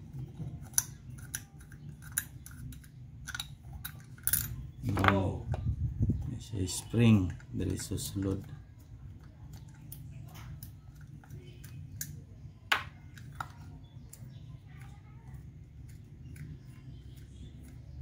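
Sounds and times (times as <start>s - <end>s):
steady low hum: 0.0s - 18.0s
small metal clicks and taps: 0.6s - 5.1s.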